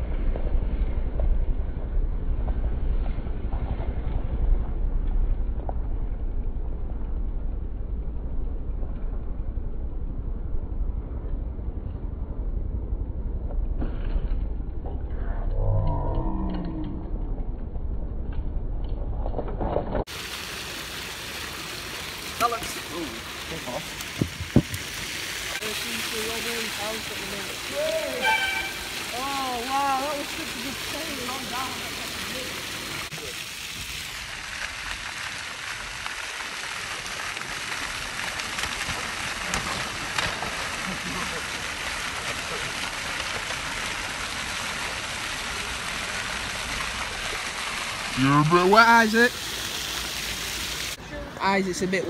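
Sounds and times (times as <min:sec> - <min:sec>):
bike rolling over rough tarmac: 0:00.0 - 0:12.4
fountain water jets splashing: 0:20.1 - 0:52.0.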